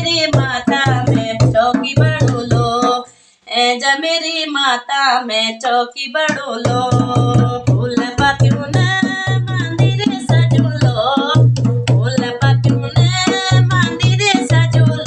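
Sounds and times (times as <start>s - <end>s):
dholak drum folk rhythm: 0.0s - 3.1s, 6.3s - 15.0s
woman singing: 0.0s - 15.0s.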